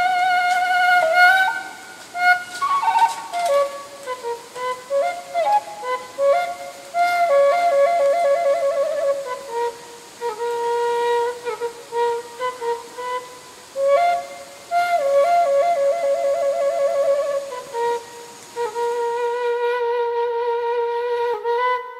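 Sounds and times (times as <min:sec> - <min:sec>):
bamboo flute melody: 0:00.0 - 0:21.9.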